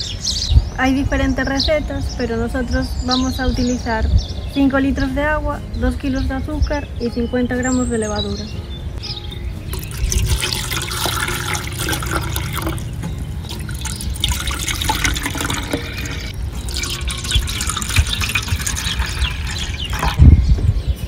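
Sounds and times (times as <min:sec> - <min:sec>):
liquid pouring and splashing: 0:09.7 - 0:20.3.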